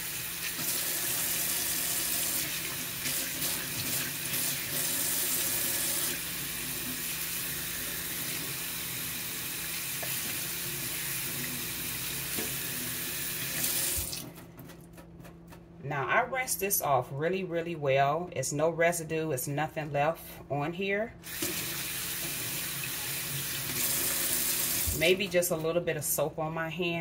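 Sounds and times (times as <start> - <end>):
faucet water splashing into sink: 0.0 - 14.3, 21.3 - 25.0.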